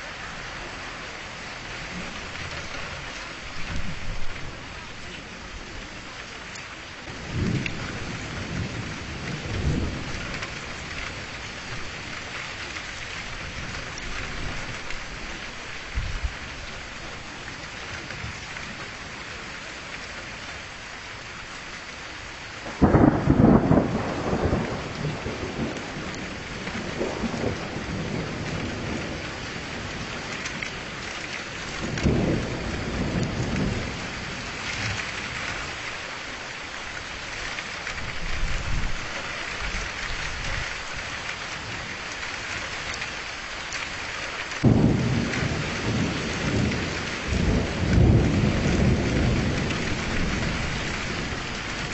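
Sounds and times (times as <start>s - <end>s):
steady rain falling: 0.0s - 51.9s
thunder rolling: 7.1s - 12.4s, 22.6s - 31.0s, 31.6s - 35.8s, 44.6s - 51.9s.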